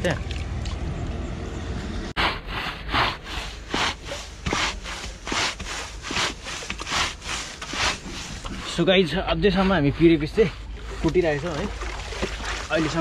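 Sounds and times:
rhythmic rasping grinding strokes: 2.2s - 11.6s.

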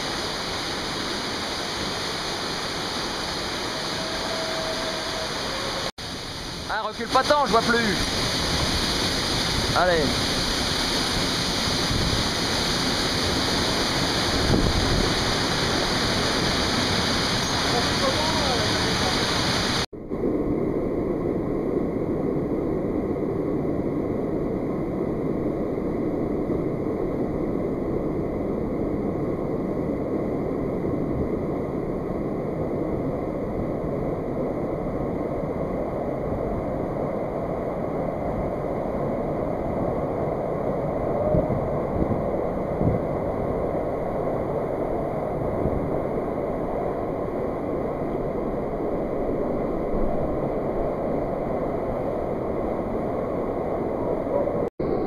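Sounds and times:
stream rushing over rocks: 0.0s - 19.9s.

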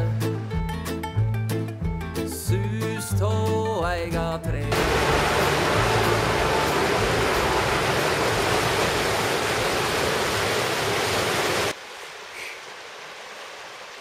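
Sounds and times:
water rushing over rocks: 4.7s - 11.8s.

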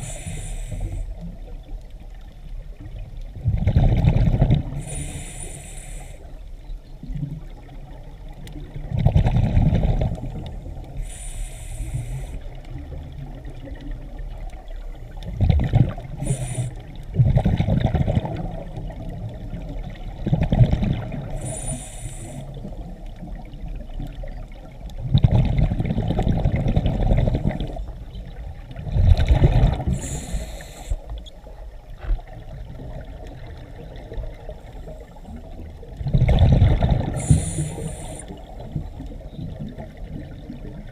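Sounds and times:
regulator hiss on inhale: 0.0s - 1.4s, 4.7s - 6.6s, 10.7s - 12.6s, 16.2s - 17.0s, 21.2s - 22.8s, 29.8s - 31.3s, 37.1s - 39.0s
exhaust bubbles underwater: 0.0s - 6.1s, 7.0s - 31.6s, 32.2s - 40.9s.

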